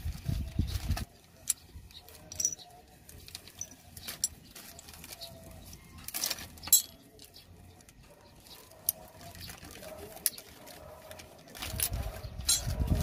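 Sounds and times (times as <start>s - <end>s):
plastic wrapping crinkling: 0.0s - 13.0s
metal brake pieces clinking: 1.4s - 2.7s, 6.6s - 7.0s, 11.6s - 12.8s.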